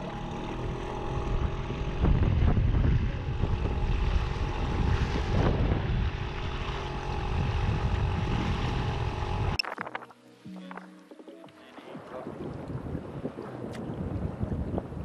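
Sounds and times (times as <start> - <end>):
outboard motor running: 0.0 - 9.6
water splashing along hull: 0.0 - 15.0
wind buffeting microphone: 1.0 - 10.1, 11.8 - 15.0.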